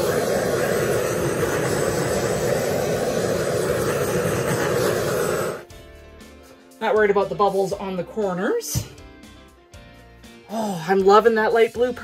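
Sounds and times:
torch flame hissing: 0.0 - 5.7.

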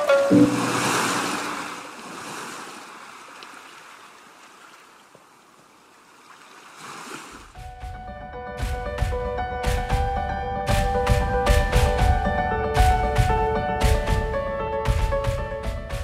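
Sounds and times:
sea waves washing on shore: 0.0 - 7.6
music with a beat: 7.6 - 16.0.

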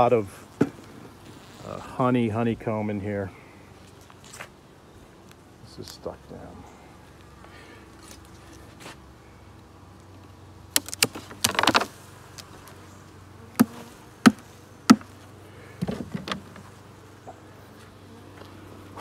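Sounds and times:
honeybees buzzing: 0.0 - 19.0
crackling wood scrape: 10.8 - 12.9.

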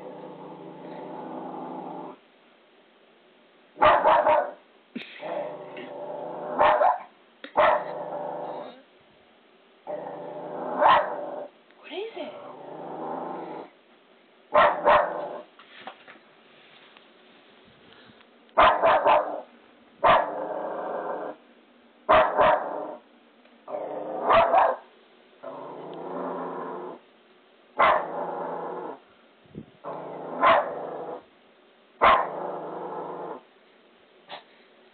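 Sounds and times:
dog growling: 0.0 - 2.2, 5.2 - 6.8, 7.6 - 8.8, 9.8 - 11.5, 12.3 - 13.8, 20.2 - 21.4, 23.7 - 24.6, 25.4 - 27.0, 27.8 - 29.0, 29.8 - 31.3, 32.0 - 33.4
dog barking: 3.8 - 4.6, 6.6 - 8.0, 10.8 - 11.2, 14.5 - 15.4, 18.6 - 20.4, 22.1 - 23.0, 24.3 - 24.9, 27.8 - 28.1, 30.4 - 30.8, 32.0 - 32.4.

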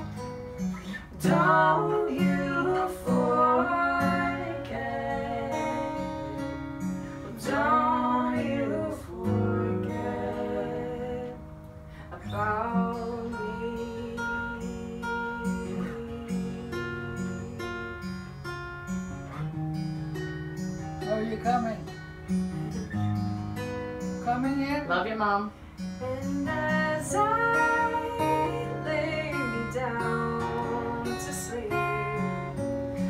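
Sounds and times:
acoustic guitar: 0.0 - 33.0
person singing: 1.1 - 6.6, 7.2 - 11.4, 26.0 - 32.6.

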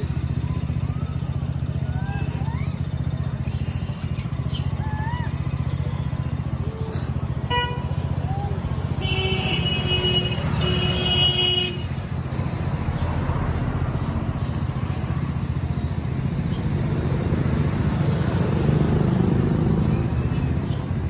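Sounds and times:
road traffic rumble: 0.0 - 21.0
vehicle horn tooting: 7.5 - 8.1, 8.8 - 12.1.

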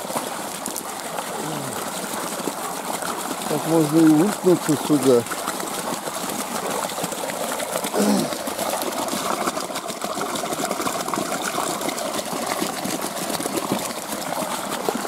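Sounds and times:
stream splashing into pool: 0.0 - 15.0.

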